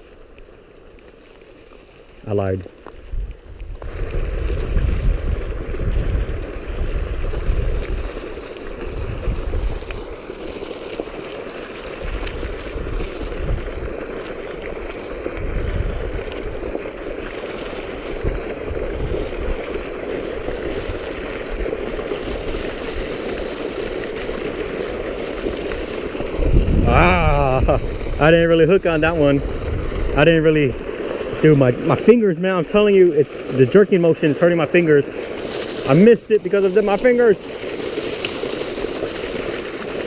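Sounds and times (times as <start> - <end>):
water gushing and splashing: 0.0 - 40.0
wind buffeting microphone: 3.0 - 10.0, 12.0 - 14.1, 15.2 - 16.7, 18.1 - 19.6, 26.2 - 32.0.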